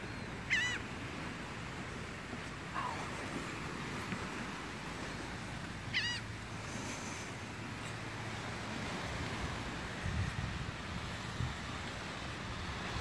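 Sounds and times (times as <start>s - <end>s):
seabird mewing call: 0.0s - 1.5s, 2.6s - 3.8s, 5.1s - 7.1s
breeze: 0.0s - 10.0s
light surf hissing: 0.0s - 13.0s.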